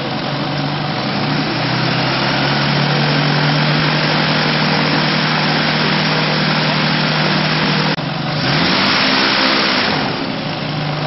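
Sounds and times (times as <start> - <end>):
gyrocopter engine and propeller: 0.0 - 8.3.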